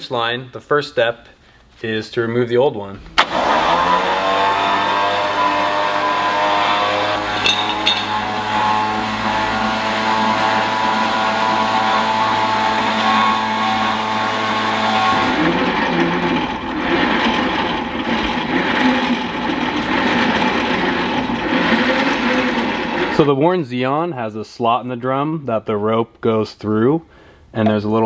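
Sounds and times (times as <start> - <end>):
electric winch motor running: 3.2 - 23.3.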